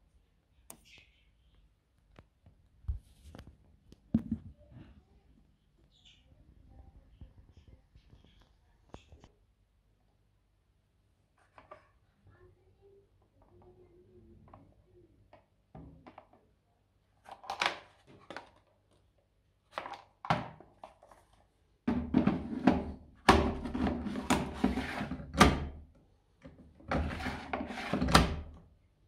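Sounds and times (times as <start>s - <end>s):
plastic drawer sliding and scraping: 21.9s - 25.6s, 26.8s - 28.4s.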